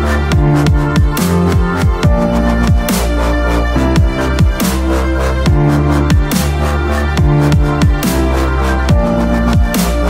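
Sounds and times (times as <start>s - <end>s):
electronic music with deep bass: 0.0s - 10.0s.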